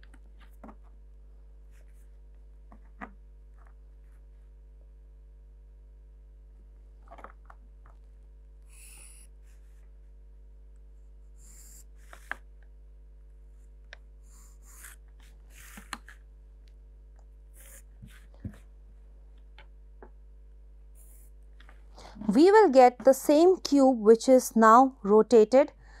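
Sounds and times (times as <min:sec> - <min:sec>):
low electrical hum: 0:00.0 - 0:26.0
pencil scratching on paper: 0:14.3 - 0:16.0, 0:17.6 - 0:18.3, 0:21.0 - 0:21.4.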